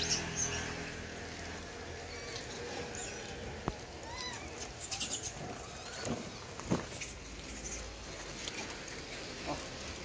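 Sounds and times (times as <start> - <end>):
faint monkey squeak: 4.0 - 6.1.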